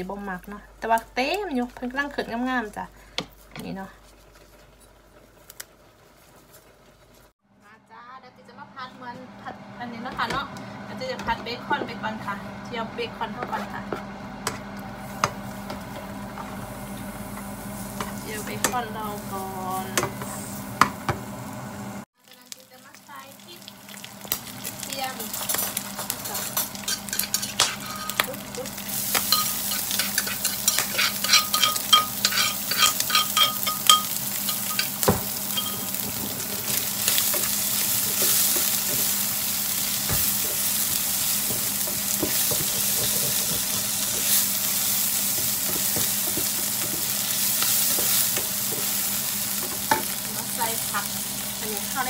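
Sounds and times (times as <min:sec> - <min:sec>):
bacon sizzling in a frying pan: 0:15.0 - 0:52.0
spatula scraping and tapping pan: 0:25.4 - 0:28.3, 0:29.1 - 0:36.4, 0:40.1 - 0:44.4, 0:45.3 - 0:49.0.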